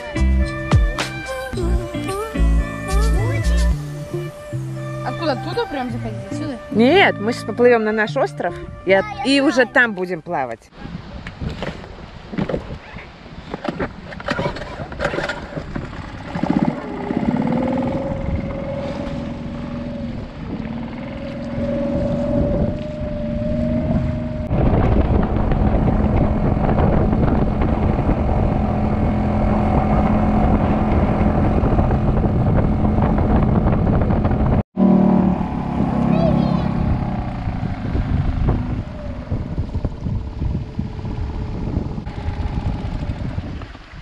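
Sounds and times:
wind: 0:00.0 - 0:44.0
water splashing against boat: 0:10.7 - 0:34.4
outboard motor running: 0:13.5 - 0:44.0.

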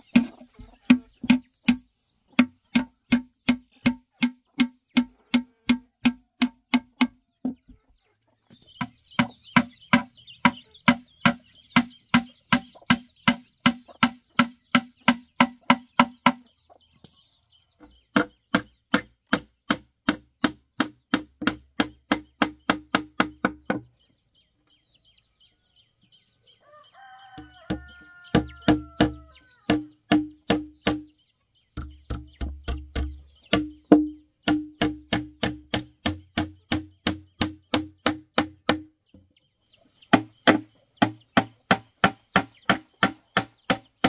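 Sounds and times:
chicken clucking: 0:00.0 - 0:18.8, 0:23.8 - 0:34.5, 0:38.7 - 0:44.0
high chirping: 0:07.2 - 0:19.4, 0:22.4 - 0:44.0
steady chopping: 0:18.1 - 0:23.8, 0:27.7 - 0:31.1, 0:31.8 - 0:38.9, 0:40.1 - 0:44.0.

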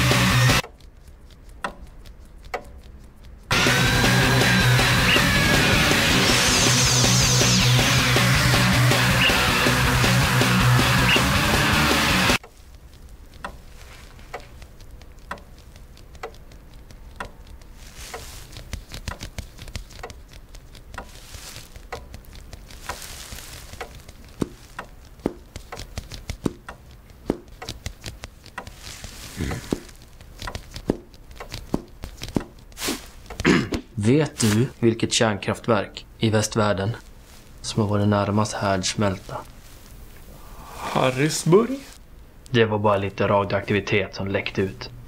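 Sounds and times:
fingers tapping on wood: 0:00.1 - 0:05.2, 0:11.8 - 0:34.0
foot tapping on wooden floor: 0:12.4 - 0:34.7.

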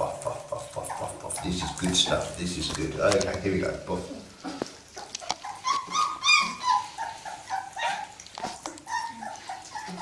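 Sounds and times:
puppies whining and yelping: 0:04.3 - 0:10.0.

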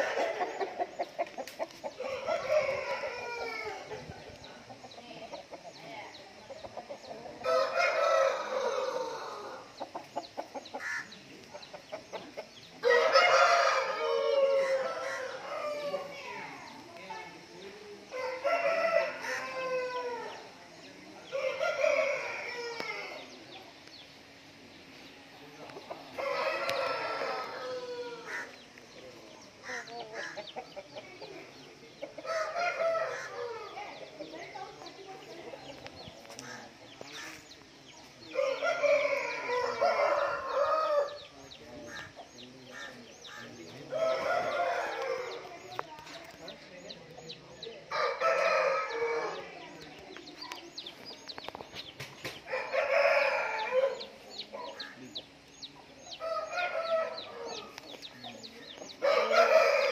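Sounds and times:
roosters crowing: 0:00.0 - 0:04.3, 0:06.9 - 0:11.2, 0:11.8 - 0:16.6, 0:18.0 - 0:23.5, 0:26.0 - 0:34.4, 0:38.2 - 0:49.9, 0:51.8 - 0:59.9
rooster crowing: 0:02.0 - 0:03.9, 0:07.4 - 0:09.7, 0:12.8 - 0:16.1, 0:26.2 - 0:28.5, 0:38.3 - 0:41.3, 0:43.9 - 0:45.5, 0:47.9 - 0:49.5, 0:52.5 - 0:54.8, 0:59.0 - 0:59.9.

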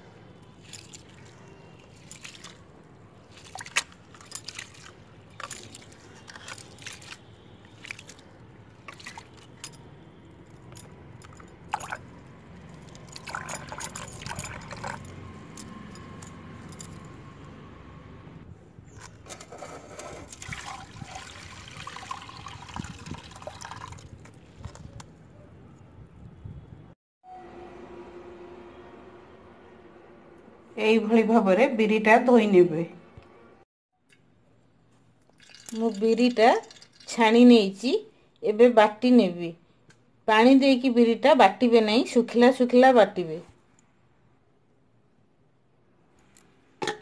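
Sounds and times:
water poured off splashing: 0:20.3 - 0:24.1.

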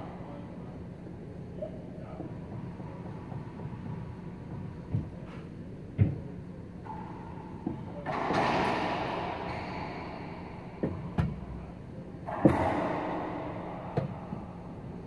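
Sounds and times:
ball smacking racquets and walls: 0:06.8 - 0:14.8.

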